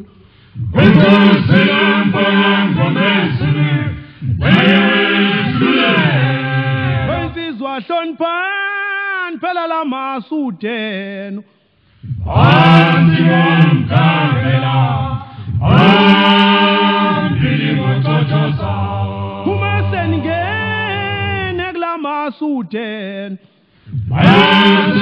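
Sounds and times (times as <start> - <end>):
lead voice singing: 0.0 - 8.1, 12.0 - 23.2, 23.9 - 25.0
male choir singing in harmony: 0.6 - 7.6, 12.0 - 21.7, 23.9 - 25.0.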